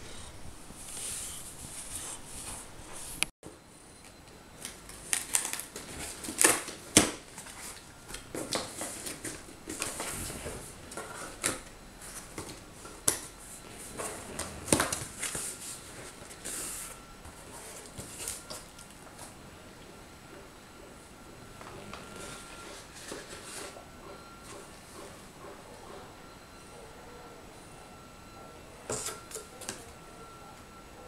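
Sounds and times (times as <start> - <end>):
cardboard rustling and scraping: 0.7 - 3.2, 5.1 - 19.3, 22.0 - 23.8.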